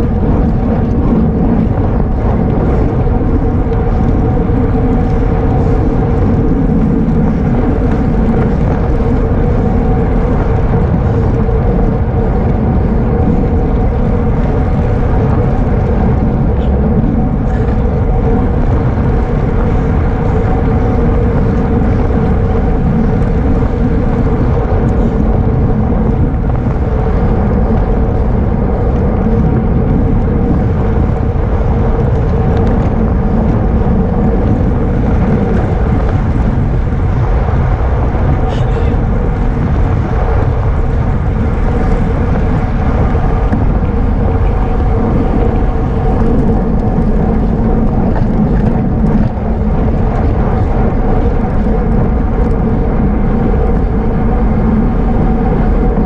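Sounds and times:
steady hum: 0:00.0 - 0:56.0
wind rushing over microphone: 0:00.0 - 0:56.0.

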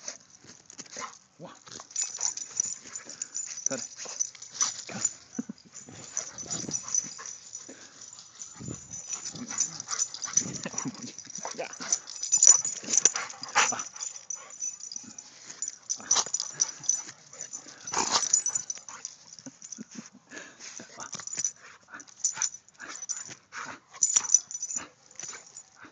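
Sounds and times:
grass rustling: 0:01.8 - 0:19.8
dog breathy noises: 0:01.8 - 0:25.9.

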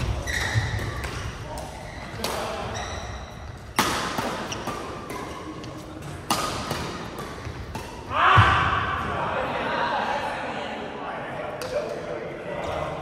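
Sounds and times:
racket hitting shuttlecock: 0:00.0 - 0:02.7, 0:03.4 - 0:08.7.

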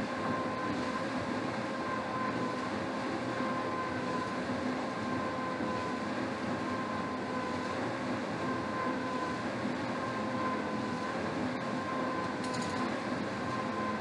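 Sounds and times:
rowing machine fan whirring: 0:00.0 - 0:14.0
small click: 0:12.4 - 0:12.9.

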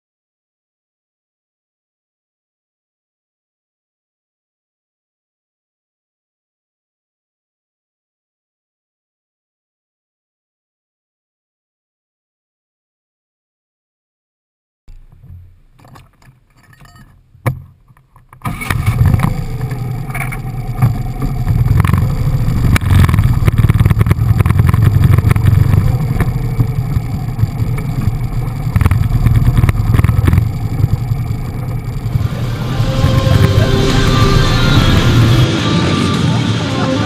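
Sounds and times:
vehicle engine running: 0:18.5 - 0:37.0
wind buffeting microphone: 0:19.0 - 0:35.4.

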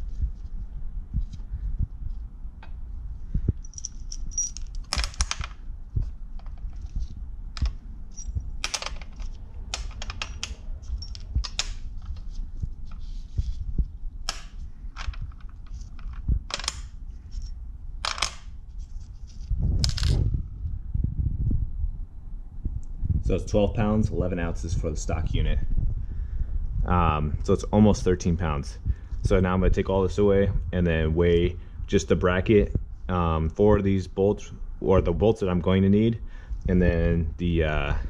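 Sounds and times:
low steady hum: 0:00.0 - 0:38.0
metal parts clinking: 0:03.6 - 0:05.6, 0:07.6 - 0:12.2, 0:14.3 - 0:18.5, 0:19.4 - 0:20.2.

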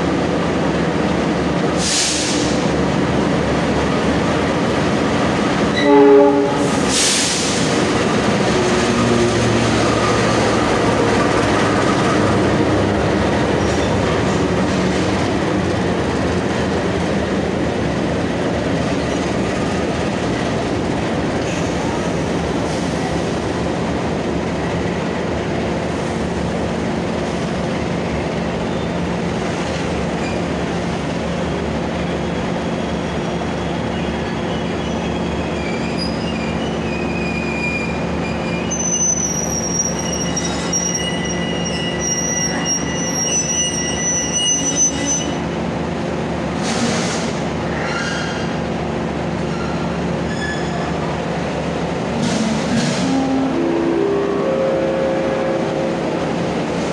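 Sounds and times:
train coaches rumbling: 0:00.0 - 0:56.9
train wheels squealing: 0:30.2 - 0:30.6, 0:32.0 - 0:45.4, 0:47.8 - 0:48.5, 0:49.5 - 0:51.0.

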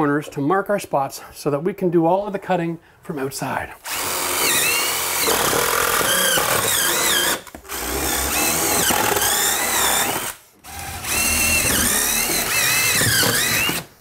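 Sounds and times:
cordless drill whining: 0:03.8 - 0:14.0.

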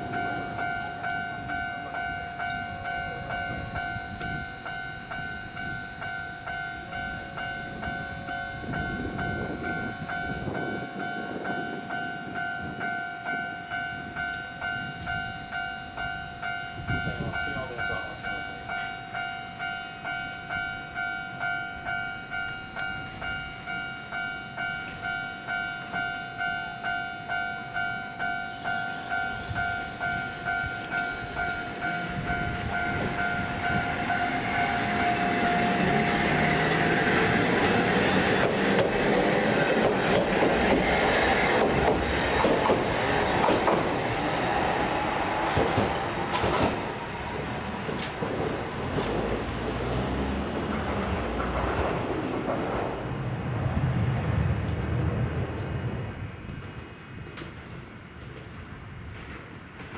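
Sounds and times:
level crossing bell ringing: 0:00.0 - 0:36.8
tram wheels running over rails: 0:00.0 - 0:59.9.

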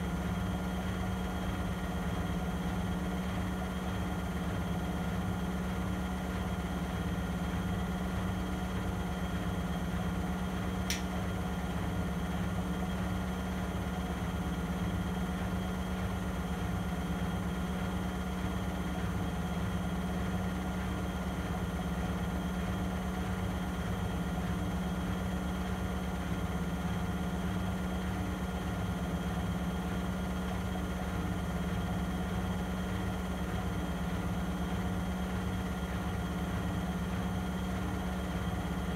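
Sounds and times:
small click: 0:10.9 - 0:11.2.

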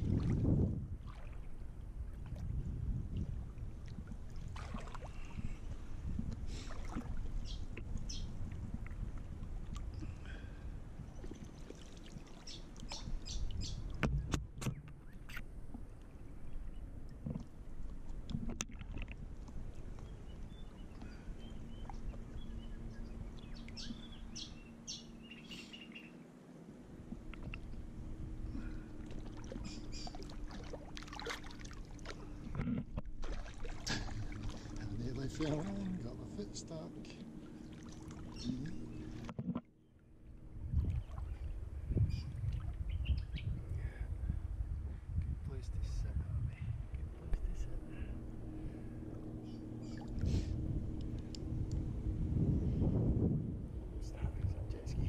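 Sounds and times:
water splashing around wading dog: 0:00.0 - 0:05.5, 0:06.5 - 0:08.6, 0:29.0 - 0:36.2, 0:37.1 - 0:39.3
water sloshing and splashing: 0:00.0 - 0:10.3, 0:10.9 - 0:16.2, 0:17.0 - 0:24.2, 0:26.9 - 0:42.9, 0:48.4 - 0:51.9
faint steady hum: 0:00.0 - 0:55.0.

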